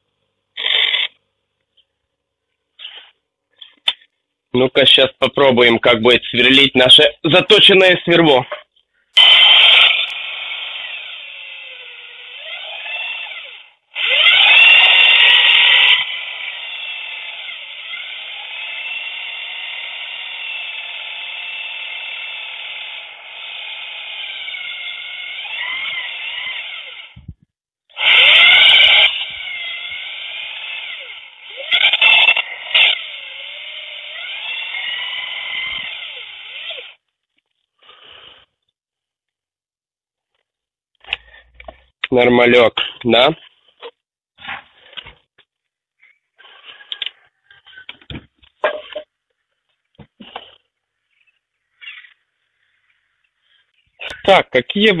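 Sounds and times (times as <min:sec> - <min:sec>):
electric drill boring: 0:09.2 - 0:37.1.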